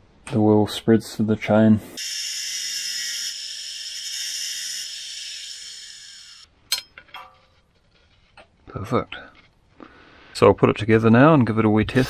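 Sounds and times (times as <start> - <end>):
angle grinder cutting metal: 2.0 - 6.5.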